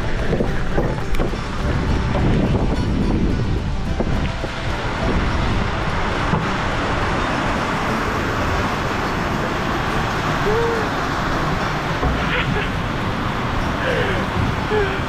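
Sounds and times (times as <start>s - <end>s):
wind on camera microphone: 0.0s - 14.8s.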